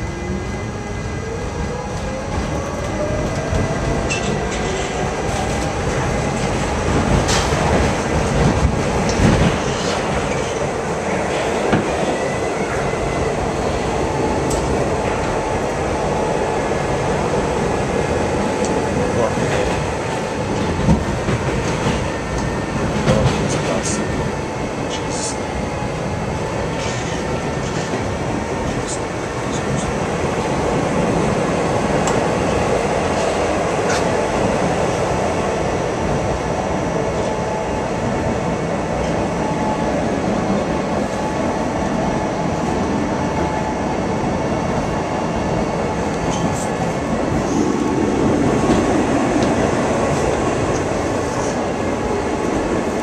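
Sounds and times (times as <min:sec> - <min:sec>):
rail joint clicks: 0:01.9 - 0:12.8, 0:14.4 - 0:15.4, 0:18.6 - 0:18.8, 0:26.7 - 0:30.0, 0:32.0 - 0:34.2, 0:46.0 - 0:52.7.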